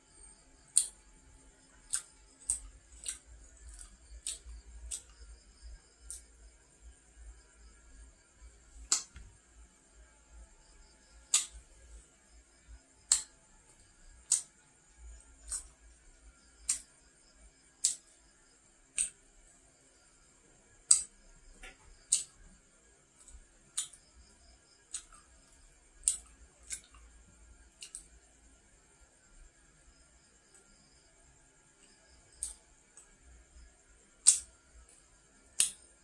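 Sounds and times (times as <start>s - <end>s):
faint steady hiss: 0.0s - 36.0s
crunchy pastry being eaten: 1.8s - 5.2s.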